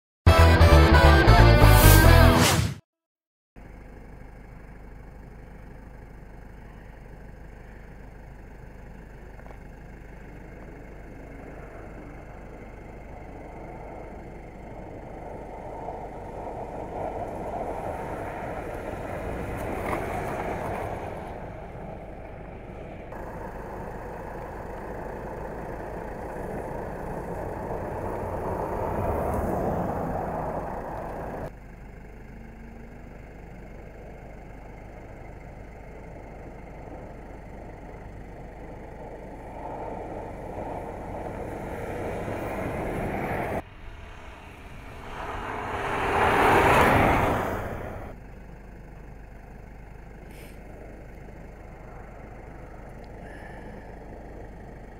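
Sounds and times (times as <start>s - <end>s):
car engine: 0.3s - 2.8s, 3.6s - 54.9s
tyres on snow: 5.0s - 32.1s, 33.3s - 48.2s, 48.8s - 54.9s
snow spraying: 41.2s - 48.1s.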